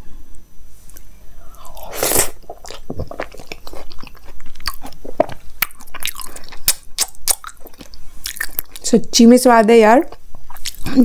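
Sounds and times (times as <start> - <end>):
close chewing with wet mouth clicks: 2.4 - 8.9.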